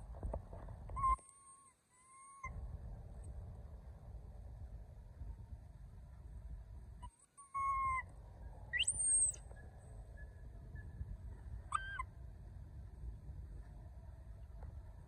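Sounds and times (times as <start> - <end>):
low steady rumble: 0.0 - 15.0
monkeys high-pitched cries: 7.4 - 8.1, 11.7 - 12.1.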